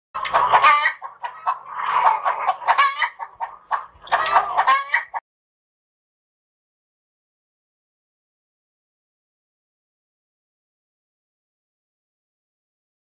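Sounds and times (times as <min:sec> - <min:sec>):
chickens clucking: 0:00.2 - 0:05.2.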